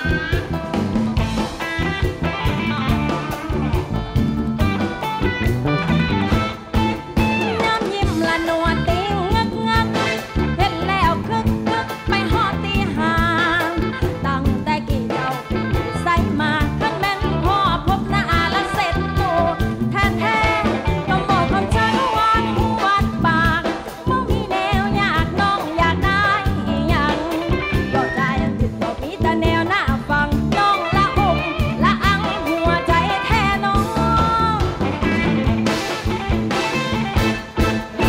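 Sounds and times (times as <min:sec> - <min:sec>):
live band playing: 0:00.0 - 0:38.0
woman singing into a microphone: 0:07.1 - 0:35.3.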